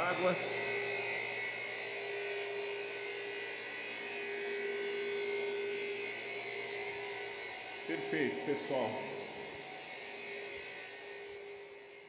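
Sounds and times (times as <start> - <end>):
high motor whine: 0.0 - 12.0.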